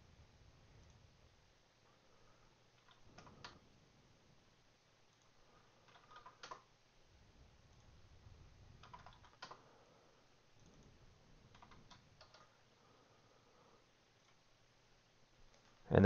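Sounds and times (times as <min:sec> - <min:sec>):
keyboard typing: 0:02.8 - 0:03.6, 0:05.1 - 0:06.7, 0:08.8 - 0:09.7, 0:10.6 - 0:12.6.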